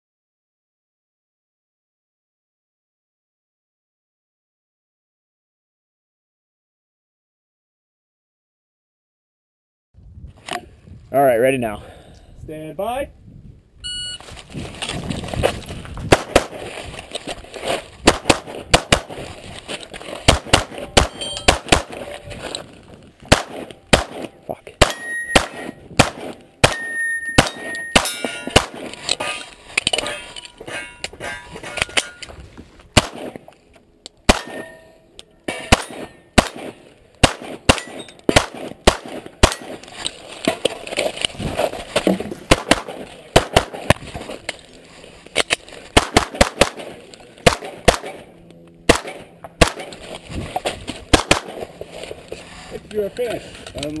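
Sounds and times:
pistol shots: 16.1 - 16.6, 18.0 - 19.2, 20.2 - 22.1, 23.3 - 29.0, 33.0 - 33.4, 34.2 - 34.8, 35.5 - 39.8, 42.5 - 44.0, 46.0 - 48.3, 48.9 - 50.0, 51.1 - 51.7
steel targets ringing: 20.8 - 22.2, 24.8 - 25.9, 26.6 - 28.6, 29.2 - 32.3, 34.3 - 36.4, 37.7 - 38.2.

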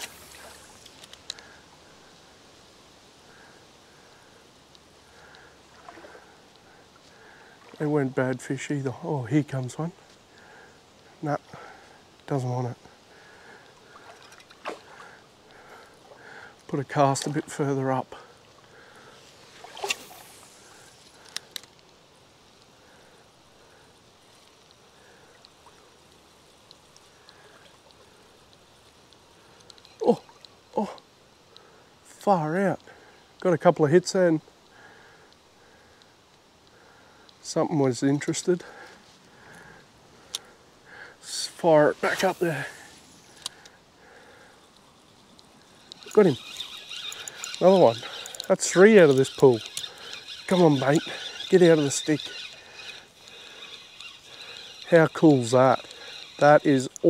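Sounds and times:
mountain stream rushing: 0.0 - 1.1, 41.3 - 43.6
faint ticks: 0.0 - 2.0, 4.1 - 7.8, 10.0 - 17.5, 18.2 - 31.9, 34.4 - 37.4, 38.2 - 41.1, 43.0 - 57.0
stream flowing: 0.0 - 11.3, 12.0 - 31.4, 38.8 - 57.0
light ticks: 4.7 - 5.5, 21.0 - 22.0, 25.4 - 31.7, 44.7 - 57.0.

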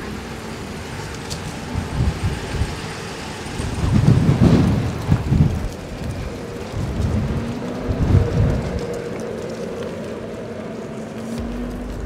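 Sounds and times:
wind buffeting microphone: 0.6 - 12.0.

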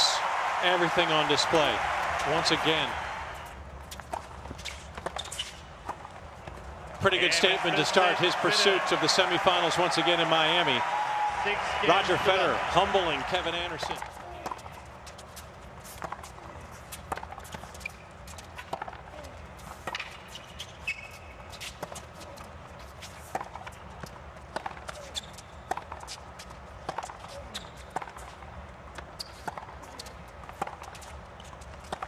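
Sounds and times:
shoe squeaks: 3.9 - 5.7, 17.6 - 18.2, 19.9 - 22.0, 25.0 - 25.7, 27.2 - 28.0, 29.1 - 30.2.

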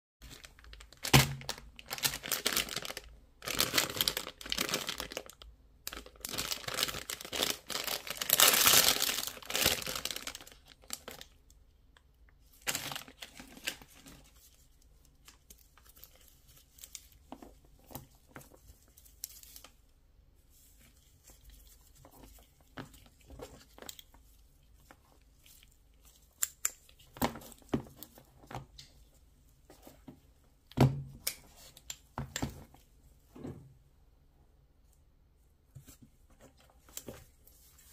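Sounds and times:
plastic pouch crinkling and tearing: 0.2 - 11.4, 12.5 - 14.4
cable handling clicks: 26.3 - 27.0.

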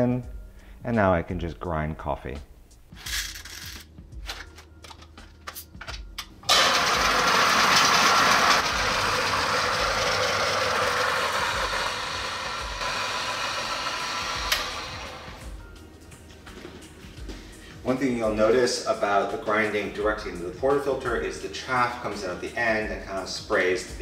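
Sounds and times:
coffee grinder grinding beans: 6.5 - 15.6.

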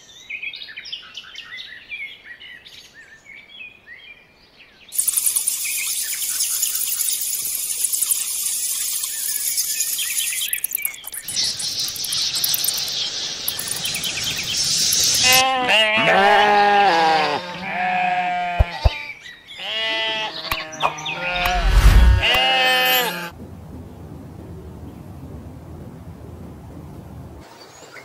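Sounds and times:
high hiss with chirping: 5.0 - 15.7, 18.1 - 23.3
sheep bleating: 15.2 - 21.6, 22.2 - 23.3
low rumble: 21.3 - 22.4.

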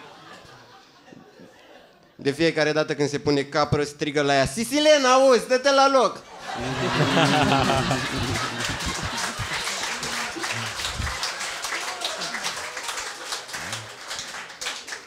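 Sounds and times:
audience laughing: 0.0 - 2.0, 6.3 - 14.1
audience clapping: 6.5 - 15.0.

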